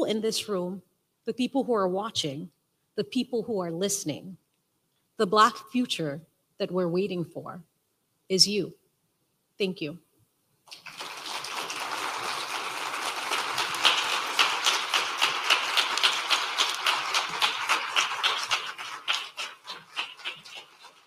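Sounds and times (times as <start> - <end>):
audience applauding: 10.7 - 21.0.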